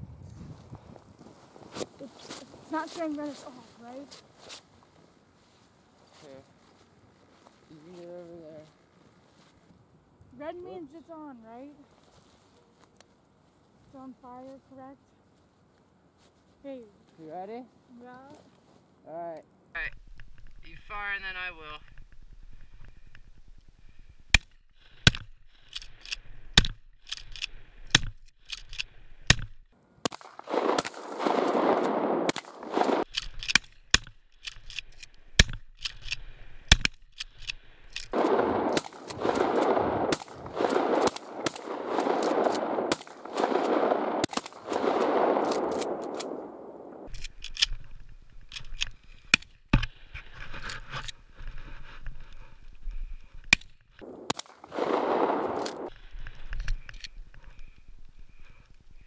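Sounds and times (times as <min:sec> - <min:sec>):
shotgun blasts: 0:30.0 - 0:33.1, 0:38.1 - 0:47.1, 0:54.0 - 0:55.9.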